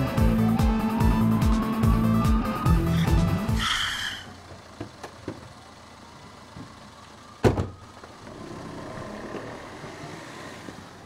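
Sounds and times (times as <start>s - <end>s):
music: 0.0s - 3.6s
loud thump: 7.4s - 7.8s.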